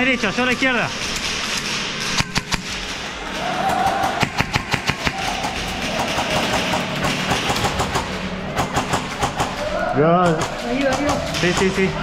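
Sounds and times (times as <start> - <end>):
airsoft gun shots: 3.7 - 9.6.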